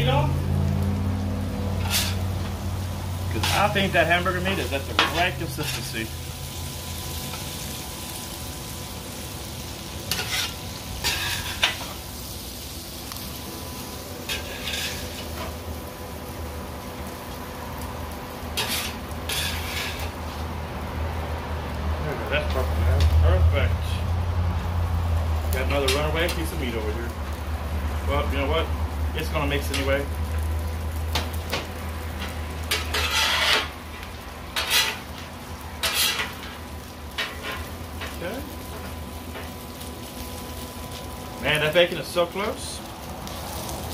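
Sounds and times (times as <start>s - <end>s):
meat sizzling on griddle: 0.0s - 43.9s
metal spatula scraping griddle: 1.7s - 2.6s, 3.3s - 6.1s, 10.0s - 12.0s, 14.2s - 15.6s, 18.5s - 20.5s, 25.6s - 26.6s, 31.5s - 39.6s.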